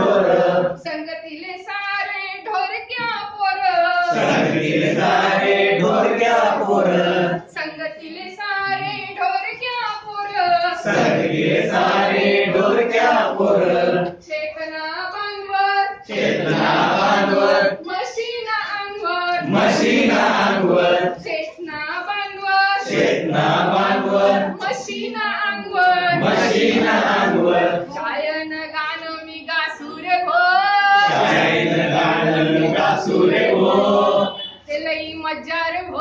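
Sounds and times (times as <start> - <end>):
group singing in response: 0.0 - 0.8, 4.0 - 7.5, 10.8 - 14.2, 16.0 - 17.9, 19.4 - 21.2, 22.8 - 25.0, 25.9 - 28.0, 30.8 - 34.6.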